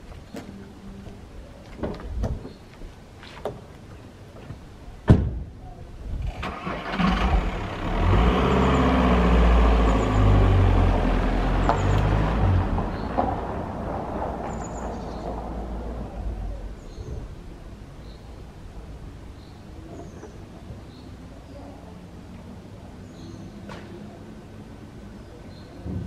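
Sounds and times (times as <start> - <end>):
footsteps: 1.6 - 4.6
car engine starting and running: 6.2 - 14.0.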